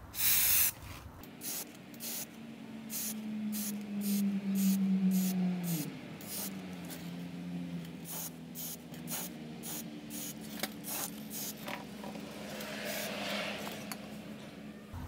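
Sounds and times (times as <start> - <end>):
aerosol can spraying: 0.2 - 0.7, 1.3 - 2.3, 2.9 - 6.6, 8.0 - 11.7.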